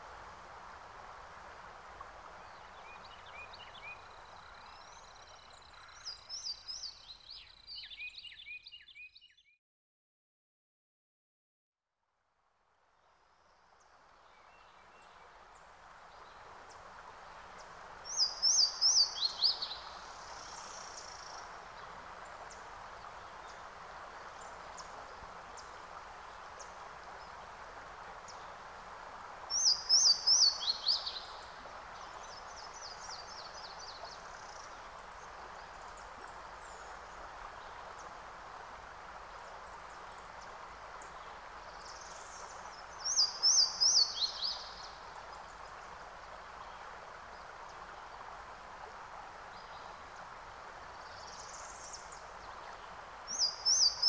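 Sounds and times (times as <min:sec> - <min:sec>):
steady outdoor hiss: 0:00.0 - 0:09.1, 0:12.0 - 0:54.0
songbird singing: 0:02.3 - 0:09.6, 0:13.8 - 0:27.6, 0:29.5 - 0:38.1, 0:39.4 - 0:48.3, 0:49.5 - 0:54.0.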